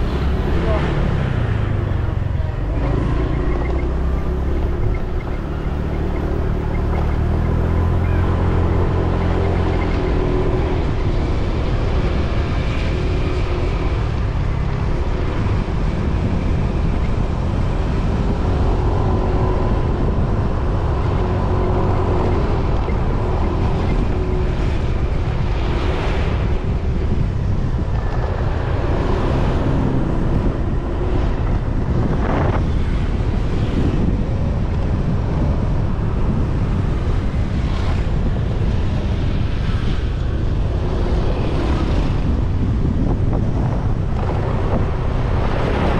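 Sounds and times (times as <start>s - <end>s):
wind and road noise: 0.0s - 45.9s.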